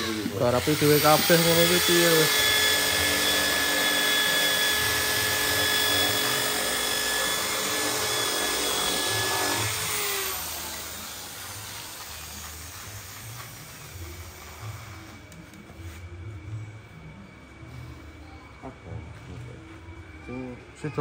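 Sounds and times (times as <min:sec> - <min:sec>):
electric drill running: 0:00.0 - 0:13.3.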